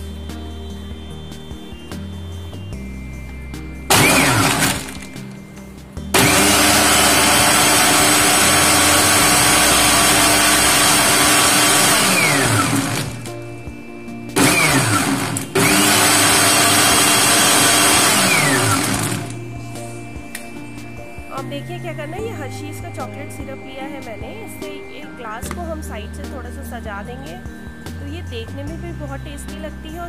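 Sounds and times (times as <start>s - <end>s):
electric blender running: 3.9s - 5.2s, 6.2s - 13.3s, 14.4s - 19.4s.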